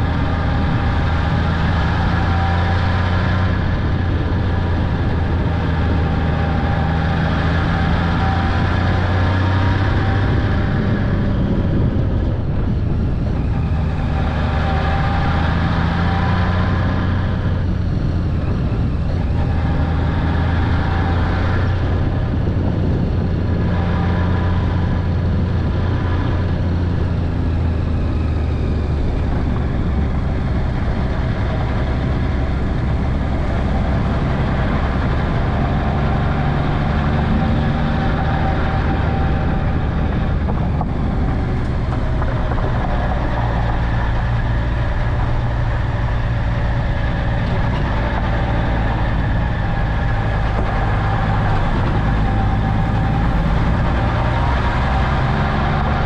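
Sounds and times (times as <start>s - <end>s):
wind and road noise: 0.0s - 56.0s
motorcycle engine running: 16.3s - 56.0s.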